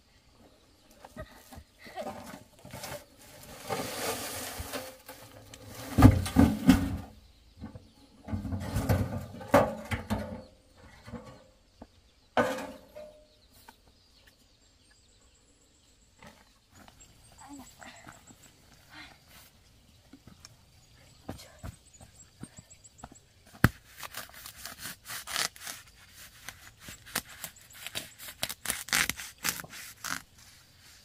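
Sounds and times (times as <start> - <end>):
wheelbarrow clanking down: 1.9 - 7.1, 8.2 - 11.4, 12.4 - 13.2
sack scraping out of wheelbarrow: 2.7 - 7.0.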